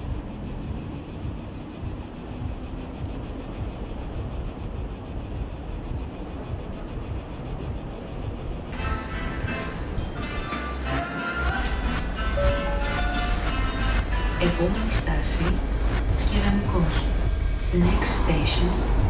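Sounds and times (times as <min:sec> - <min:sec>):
cicadas buzzing: 0:00.0 - 0:19.0.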